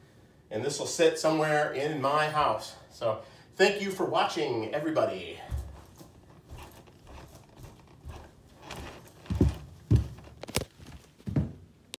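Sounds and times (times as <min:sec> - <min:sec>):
heavy boot footsteps: 0:04.9 - 0:11.9
heavy thuds: 0:05.4 - 0:11.6.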